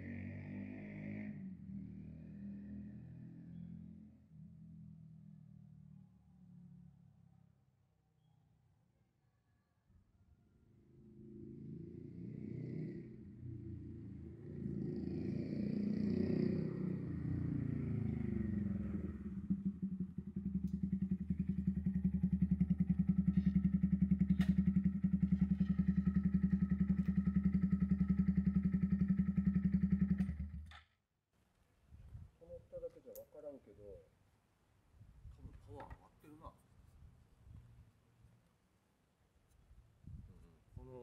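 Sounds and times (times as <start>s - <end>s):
motorcycle engine revving and idling: 0.0s - 6.7s, 10.8s - 30.9s.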